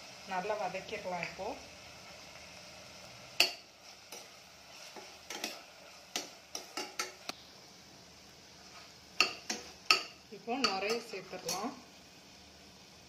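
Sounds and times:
faint sizzle: 0.0 - 13.0
metal spoon clinking in pan: 3.4 - 4.3, 9.2 - 11.7.

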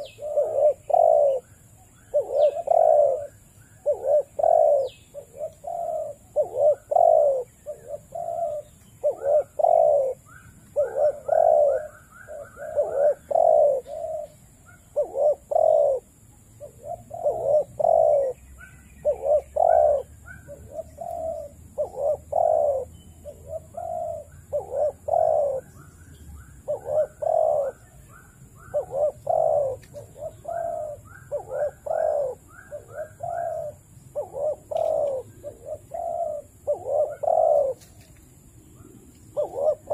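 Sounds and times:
doves cooing: 0.0 - 39.9.

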